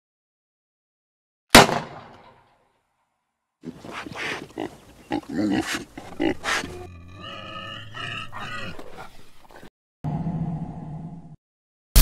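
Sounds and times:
wild hog grunting and squealing: 3.6s - 11.1s.

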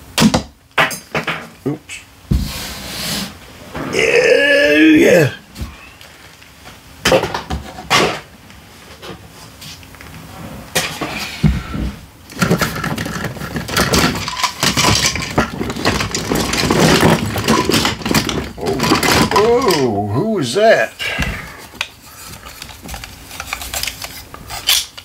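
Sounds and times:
plastic toys clattering in a box: 12.3s - 20.0s, 21.8s - 25.0s.

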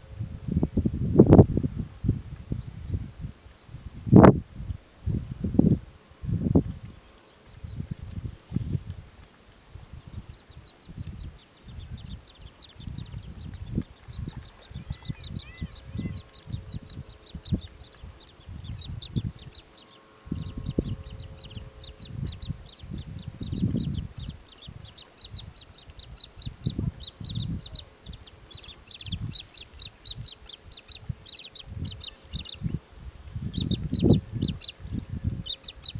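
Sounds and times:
bird high chirps: 10.3s - 32.8s, 33.4s - 35.9s.

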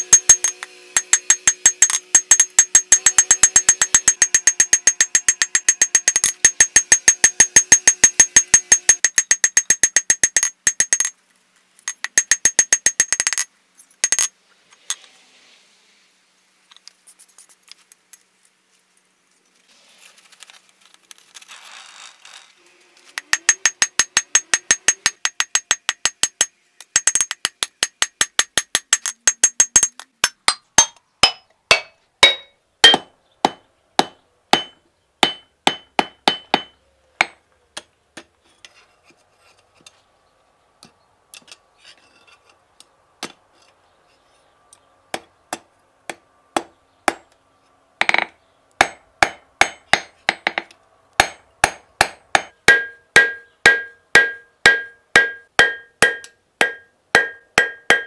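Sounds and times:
hammer ringing on anvil: 0.0s - 11.1s, 30.8s - 37.4s, 51.2s - 58.0s.

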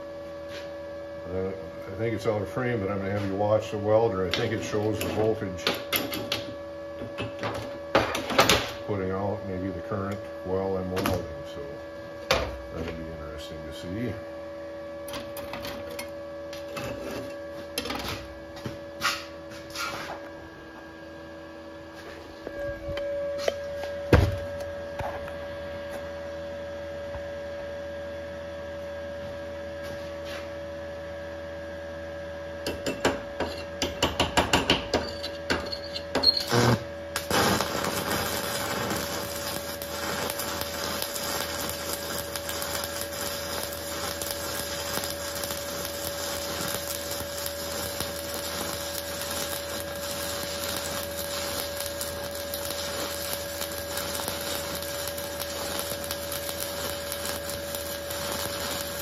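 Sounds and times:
welder humming: 0.0s - 31.5s, 32.1s - 59.0s
loud thump: 24.1s - 24.4s
hissing welding arc: 35.6s - 59.0s.

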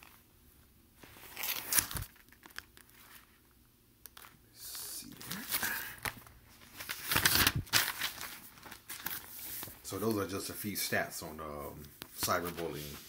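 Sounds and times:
paper rustling: 1.0s - 4.4s, 5.1s - 10.2s, 11.6s - 13.0s.

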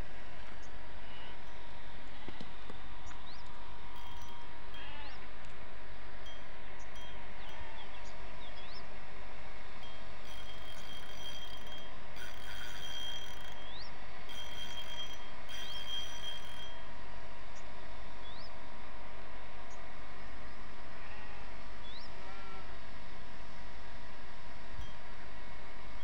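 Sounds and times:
fishing reel drag buzzing: 10.3s - 16.8s.

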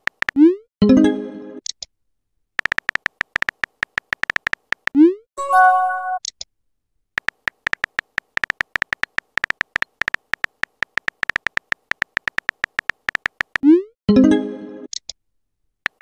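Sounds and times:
phone keyboard tap clicks: 2.6s - 4.9s, 7.2s - 13.6s.

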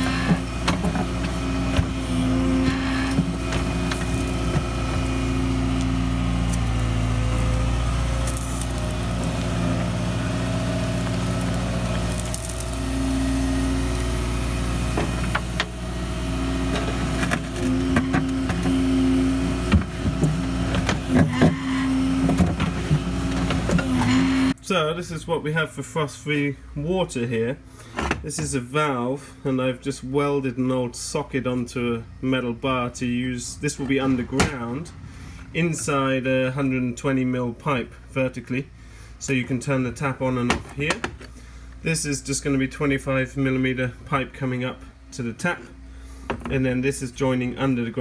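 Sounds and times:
bucket scraping soil and stones: 0.0s - 7.2s, 7.8s - 13.8s
hydraulics labouring: 0.0s - 25.3s, 31.2s - 48.0s
excavator diesel engine: 0.0s - 30.7s, 31.5s - 48.0s.

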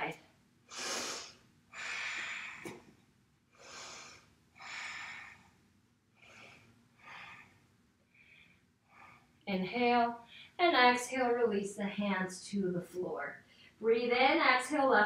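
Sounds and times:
woman breathing: 0.7s - 9.4s.

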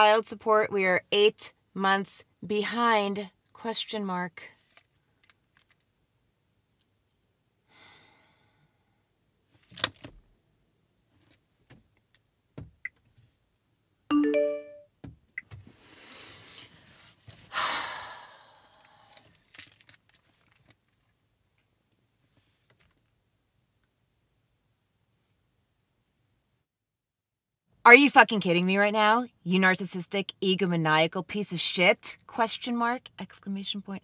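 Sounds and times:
long breathy sighs: 7.7s - 9.0s, 17.5s - 19.2s
phone message alert chime: 14.1s - 14.9s.

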